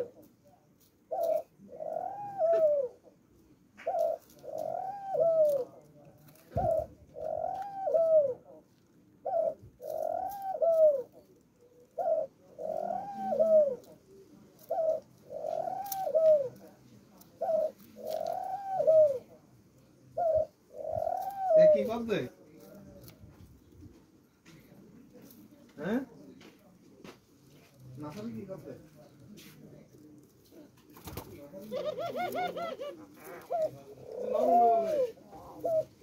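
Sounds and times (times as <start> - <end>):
dove cooing: 0.0 - 0.3, 1.1 - 3.2, 3.8 - 8.6, 9.2 - 19.4, 20.1 - 23.1, 30.5 - 36.0.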